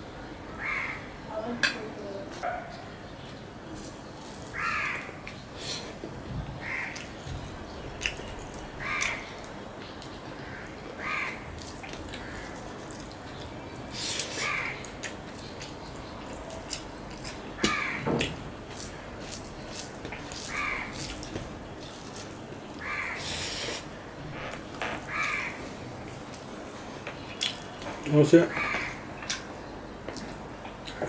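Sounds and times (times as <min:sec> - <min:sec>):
crows cawing: 0:00.5 - 0:01.1, 0:04.5 - 0:05.2, 0:06.6 - 0:07.1, 0:08.8 - 0:09.5, 0:10.4 - 0:12.6, 0:14.4 - 0:14.9, 0:17.6 - 0:18.1, 0:20.4 - 0:21.1, 0:22.8 - 0:23.4, 0:24.9 - 0:25.7, 0:28.5 - 0:29.0
chewing and lip smacks: 0:08.0 - 0:09.1, 0:14.2 - 0:17.4.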